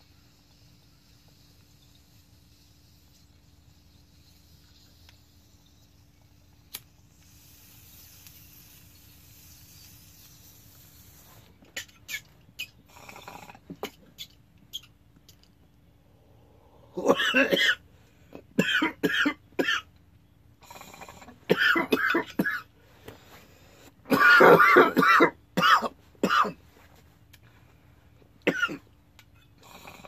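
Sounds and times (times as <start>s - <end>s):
glass bong bubbling: 0.0s - 14.9s
small clicks and pops: 6.2s - 7.4s
man coughing hard: 17.0s - 17.8s, 18.6s - 19.8s, 21.5s - 22.7s, 24.1s - 26.6s, 28.5s - 28.9s.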